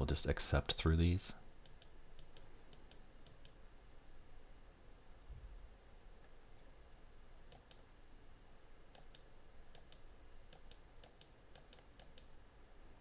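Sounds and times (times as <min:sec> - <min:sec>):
computer mouse clicks: 0:00.8 - 0:03.6, 0:07.5 - 0:07.9, 0:08.9 - 0:12.4.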